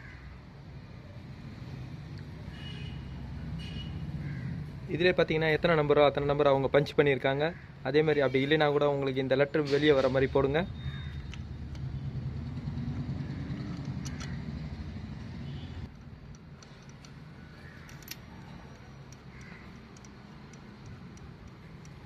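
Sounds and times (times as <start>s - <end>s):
metal clicks of tools: 12.9s - 14.4s, 15.9s - 22.0s.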